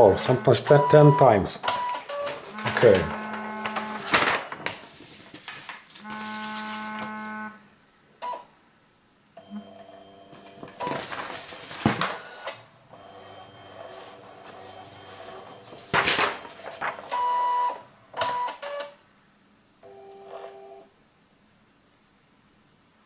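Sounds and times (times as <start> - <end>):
printer motors whirring: 1.8 - 4.1.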